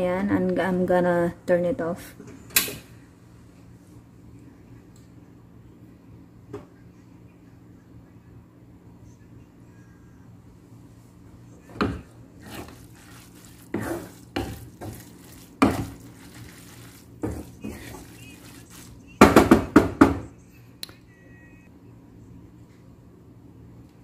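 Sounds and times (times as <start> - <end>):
wooden spatula knocking on a pan: 13.7 - 16.0, 17.2 - 20.2.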